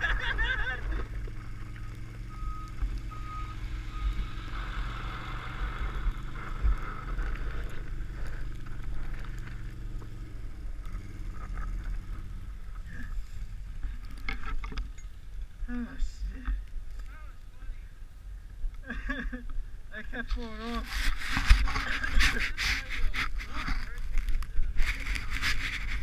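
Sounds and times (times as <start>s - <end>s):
atv engine running: 0.0s - 17.3s
plastic lid scraping over snow: 20.4s - 24.0s.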